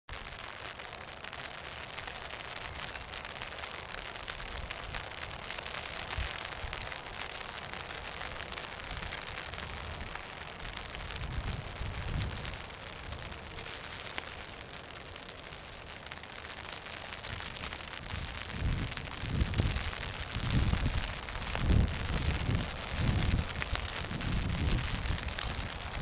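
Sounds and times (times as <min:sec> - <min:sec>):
crackling rustle: 0:00.1 - 0:26.0
wind buffeting microphone: 0:08.5 - 0:13.5, 0:17.1 - 0:26.0.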